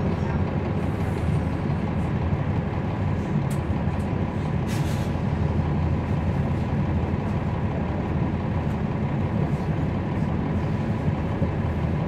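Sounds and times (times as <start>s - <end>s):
bus diesel engine rumble: 0.0s - 12.0s.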